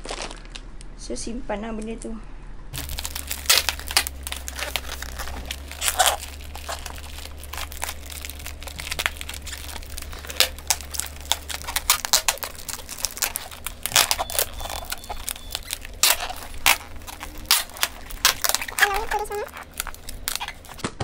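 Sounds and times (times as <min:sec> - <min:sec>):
packing tape ripping off roll: 0:00.0 - 0:00.6, 0:02.8 - 0:20.9
plastic wrap crinkling: 0:00.0 - 0:00.7, 0:02.8 - 0:20.8.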